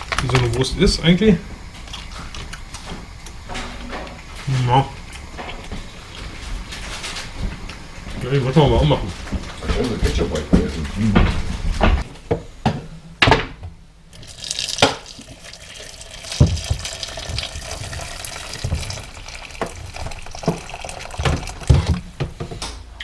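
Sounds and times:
water pouring into a pot: 14.1 - 22.0.

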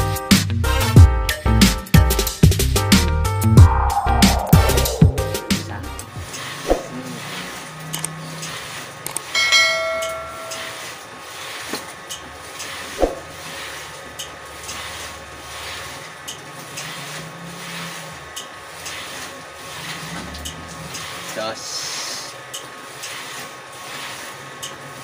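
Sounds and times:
low motor hum: 2.5 - 11.3, 12.0 - 21.4
metallic ring: 9.3 - 11.0.

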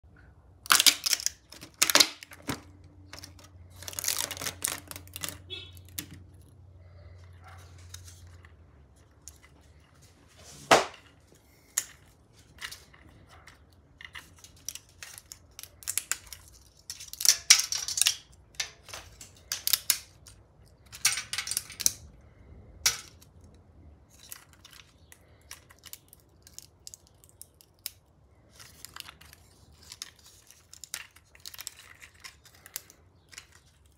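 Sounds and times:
plastic joints clicking and crackling: 0.6 - 6.6.

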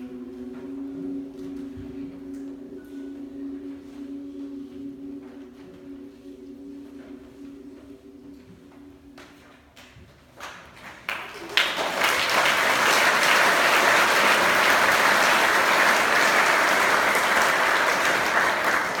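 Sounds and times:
audience applause: 11.0 - 19.0.

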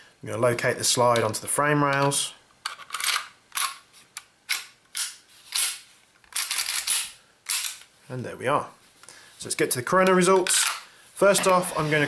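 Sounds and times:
pistol slide metallic scrapes and clicks: 4.5 - 7.9.

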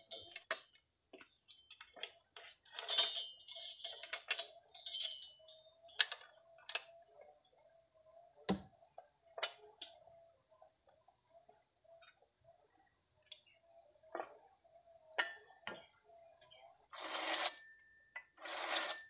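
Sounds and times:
saw chain clinking and rattling: 1.5 - 6.0, 18.3 - 19.0.

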